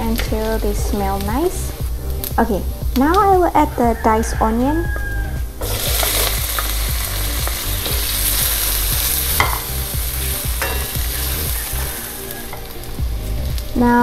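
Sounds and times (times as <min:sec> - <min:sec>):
onion sizzling in hot oil: 0:05.6 - 0:13.8.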